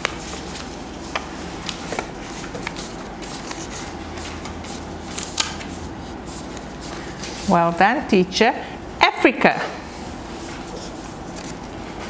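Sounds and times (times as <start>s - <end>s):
paper cards rustling: 0.0s - 7.5s, 10.4s - 11.8s
steady low hum: 0.0s - 12.0s.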